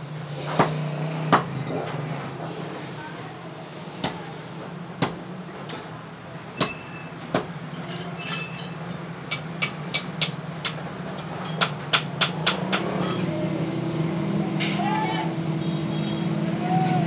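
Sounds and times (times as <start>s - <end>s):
hammer striking metal on anvil: 6.6s - 13.3s.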